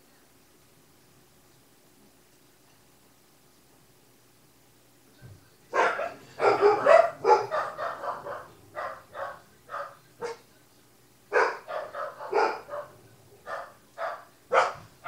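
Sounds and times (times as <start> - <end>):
parrot calling: 5.8 - 10.4.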